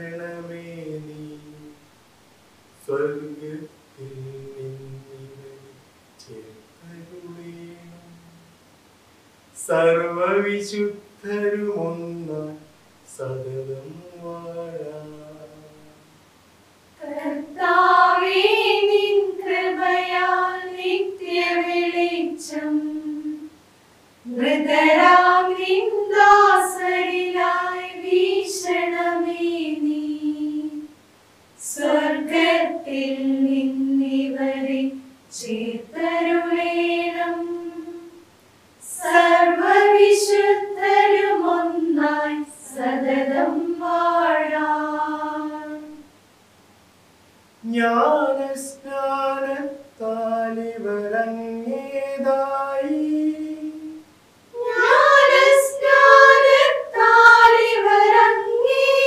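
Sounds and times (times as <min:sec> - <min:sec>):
choir singing a hymn unaccompanied: 0:00.0 - 0:01.8, 0:17.0 - 0:23.6, 0:24.2 - 0:31.0, 0:31.6 - 0:38.2, 0:38.8 - 0:46.1, 0:47.6 - 0:59.0.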